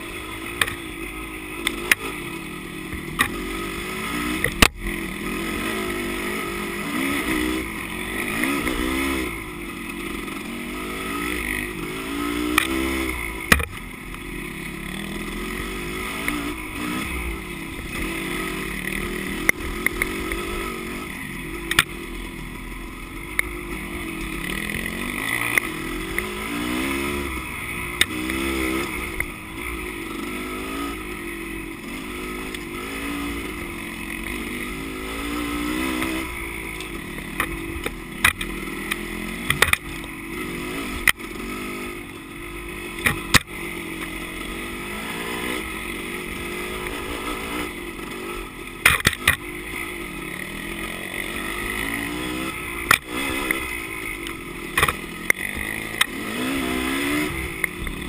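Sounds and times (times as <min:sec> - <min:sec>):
dirt bike engine revving: 0:00.0 - 0:58.0
sharp knocks and clatter: 0:48.8 - 0:49.4, 0:54.8 - 0:55.4.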